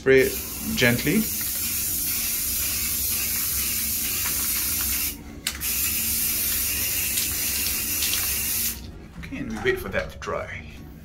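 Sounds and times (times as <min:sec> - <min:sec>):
spray paint can hissing: 0:00.2 - 0:08.8.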